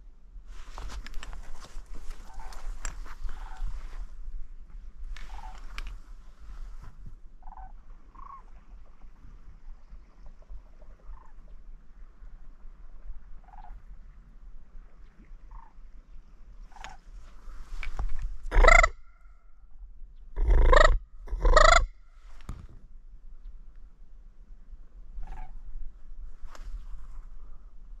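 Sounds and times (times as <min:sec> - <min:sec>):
cranes calling: 0:02.0 - 0:04.0, 0:05.2 - 0:06.0, 0:07.4 - 0:08.6, 0:16.7 - 0:19.3, 0:20.4 - 0:21.9, 0:25.2 - 0:25.8.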